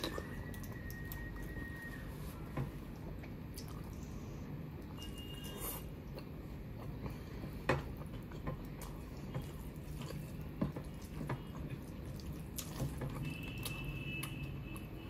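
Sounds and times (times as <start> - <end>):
chewing: 0.0 - 15.0.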